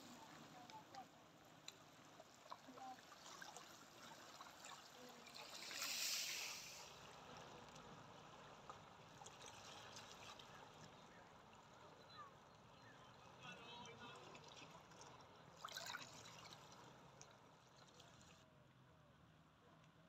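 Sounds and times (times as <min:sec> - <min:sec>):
faint trickles and ticks: 0:00.0 - 0:18.4
water lapping on pebbly shore: 0:01.8 - 0:07.3
small wave washing in: 0:02.2 - 0:07.4.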